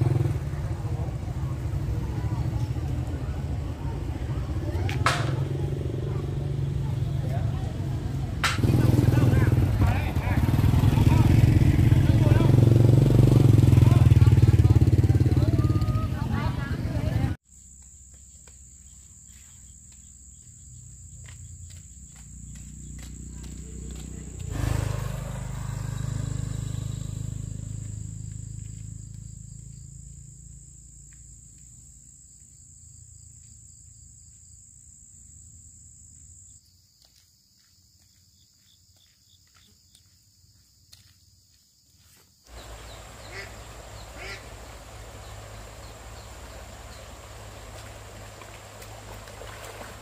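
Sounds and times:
insects singing: 0:17.5 - 0:35.4, 0:42.4 - 0:49.3.

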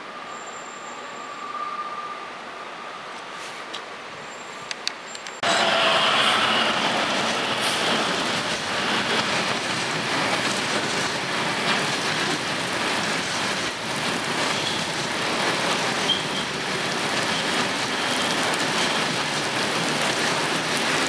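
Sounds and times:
pouring rain: 0:05.4 - 0:21.0.

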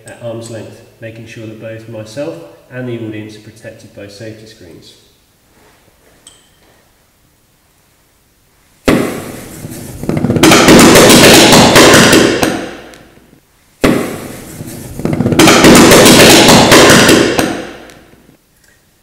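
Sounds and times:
explosive burning bangs and pops: 0:08.9 - 0:13.0, 0:13.8 - 0:18.2.

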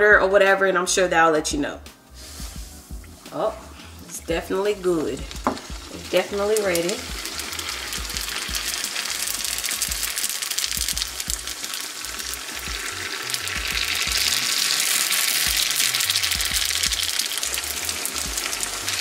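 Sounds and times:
food deep-frying in oil: 0:04.0 - 0:19.0.

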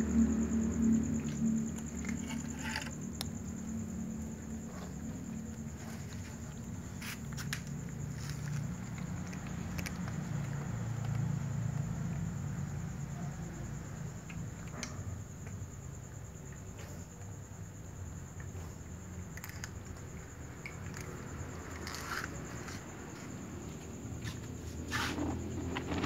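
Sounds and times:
cats crunching dry kibble: 0:04.3 - 0:12.6, 0:19.2 - 0:22.8.

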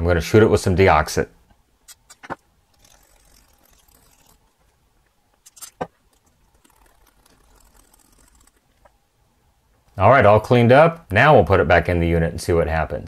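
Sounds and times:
sharp clicks: 0:01.8 - 0:09.0.

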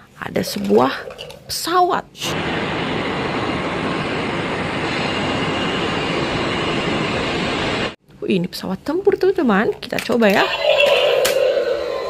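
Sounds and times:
jet engines rushing: 0:02.2 - 0:08.0.

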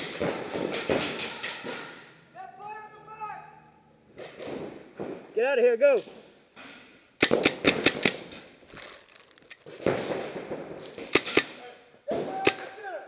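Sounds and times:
paintball markers firing: 0:07.2 - 0:11.6.

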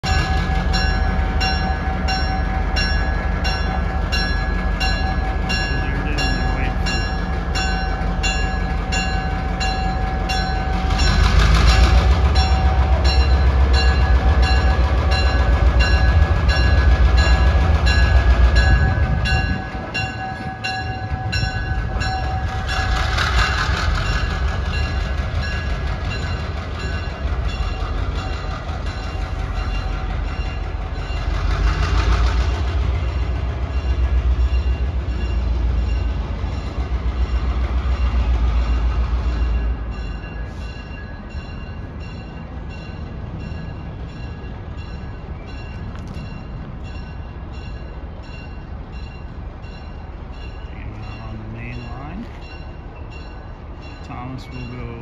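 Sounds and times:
diesel locomotive engine rumbling: 0:00.0 - 0:55.0.

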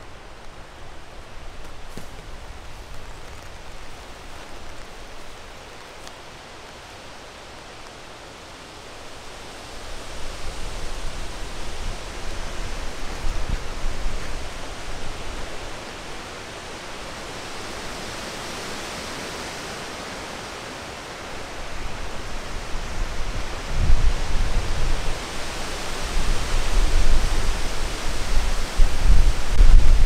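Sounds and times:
rain hissing: 0:00.0 - 0:30.0
wind gusts buffeting: 0:09.0 - 0:30.0.

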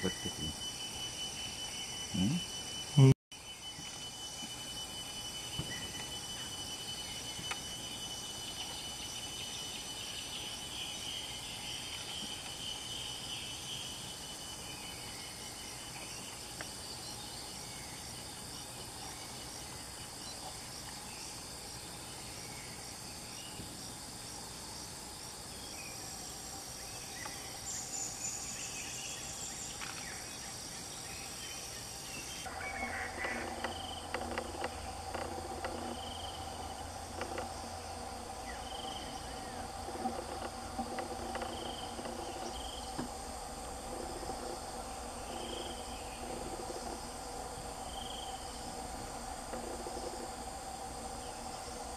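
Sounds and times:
crickets droning: 0:00.0 - 0:51.9
faint regular ticking: 0:33.1 - 0:38.1, 0:39.6 - 0:47.2.

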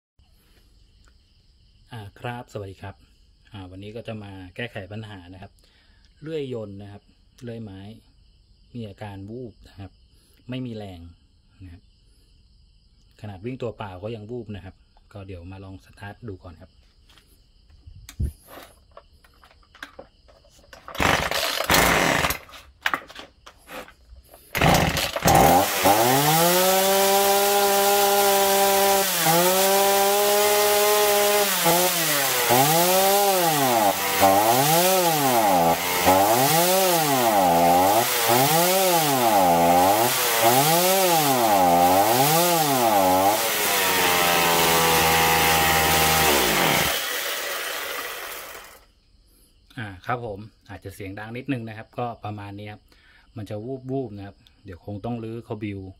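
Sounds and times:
chainsaw pull cord: 0:19.3 - 0:48.8
chainsaw engine surging: 0:20.9 - 0:22.6, 0:23.7 - 0:48.8.

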